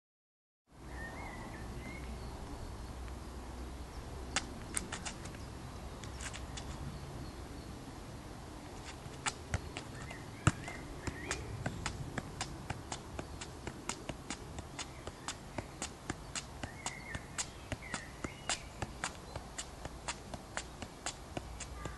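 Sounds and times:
faint outdoor background: 0:00.7 - 0:21.9
football taps: 0:08.8 - 0:21.9
bird chirping: 0:09.4 - 0:19.8.

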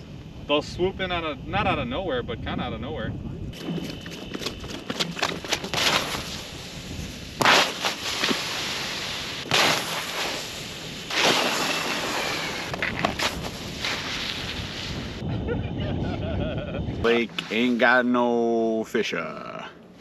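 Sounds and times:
loud ice cracking reports: 0:03.6 - 0:06.4, 0:09.4 - 0:10.4, 0:11.1 - 0:14.4.

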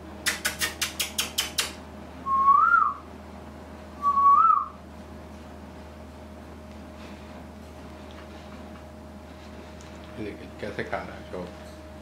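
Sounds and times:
short whistles: 0:00.3 - 0:03.0, 0:04.0 - 0:04.8.

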